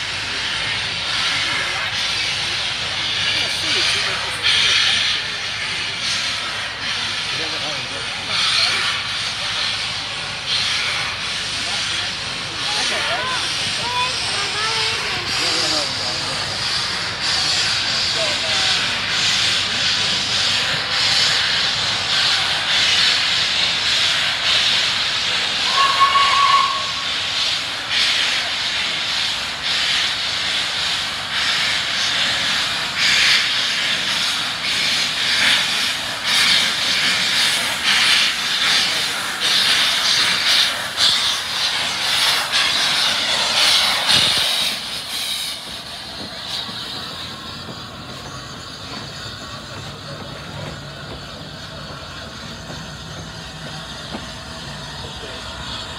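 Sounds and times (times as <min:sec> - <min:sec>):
steam hissing loudly: 0:00.0 - 0:55.9
steam whistle blast: 0:25.6 - 0:27.2.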